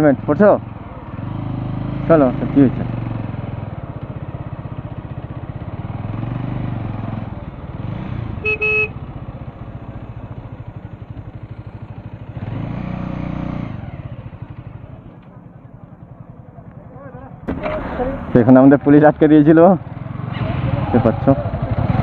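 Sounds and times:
motorcycle engine running: 0:00.0 - 0:22.0
vehicle horn double beep: 0:08.4 - 0:09.0.

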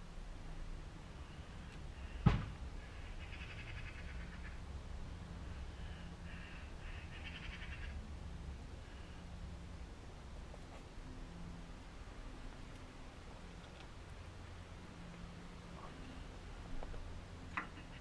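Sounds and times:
rapid chattering bird calls: 0:06.3 - 0:08.0.

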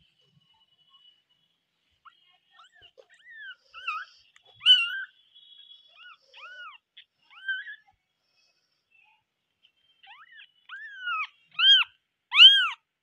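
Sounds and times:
kittens mewing: 0:02.8 - 0:05.1, 0:10.0 - 0:12.8.

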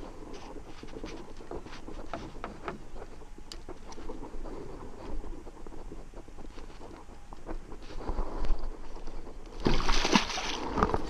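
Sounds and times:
fish struggling: 0:08.6 - 0:11.0.

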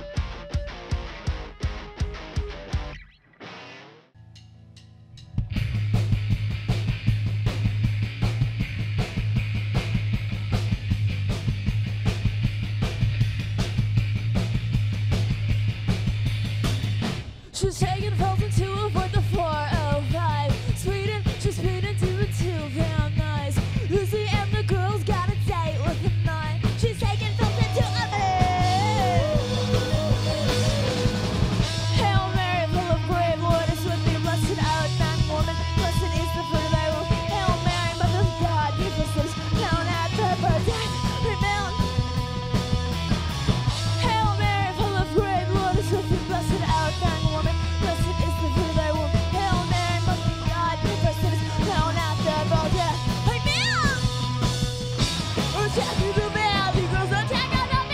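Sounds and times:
punk rock band playing: 0:00.0 - 0:04.5, 0:05.1 - 0:57.9
woman singing: 0:17.5 - 0:30.8, 0:31.8 - 0:42.0, 0:43.9 - 0:54.2, 0:55.5 - 0:57.9.

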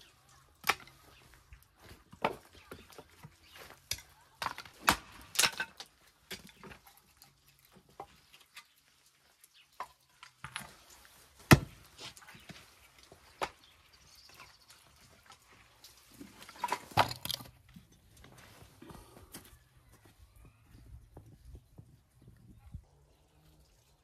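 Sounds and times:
hatchet striking wood: 0:11.5 - 0:11.7.

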